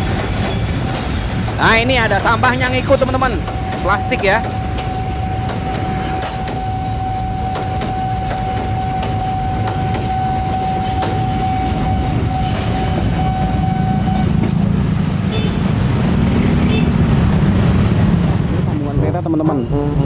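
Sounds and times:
freight cars rumbling past: 0.0 - 20.0
steady high tone: 1.6 - 14.7.

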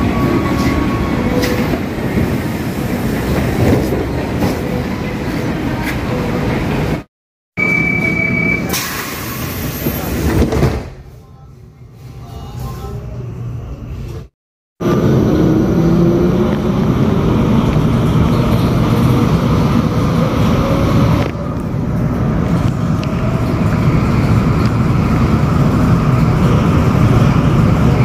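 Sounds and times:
train wheels rumbling on rails: 0.0 - 7.1.

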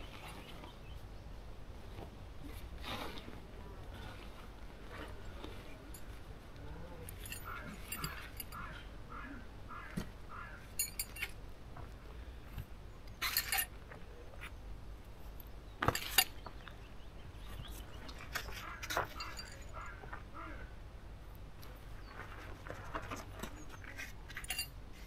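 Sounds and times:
metallic clinks of camping gear: 4.9 - 6.3, 7.0 - 8.8, 10.7 - 11.4, 13.2 - 13.8, 15.8 - 16.4, 18.2 - 20.0, 23.1 - 25.0.

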